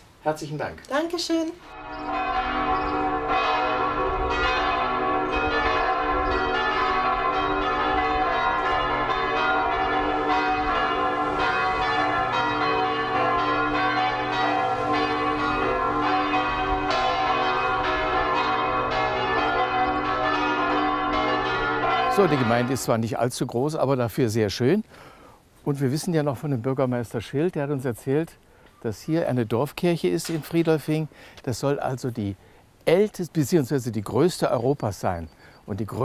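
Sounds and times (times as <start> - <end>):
church bells pealing: 1.7 - 23.8.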